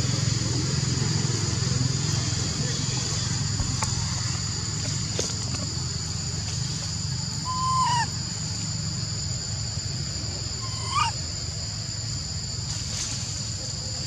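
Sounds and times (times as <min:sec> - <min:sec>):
baby macaque coo calls: 0:07.4 - 0:08.2, 0:10.6 - 0:11.2.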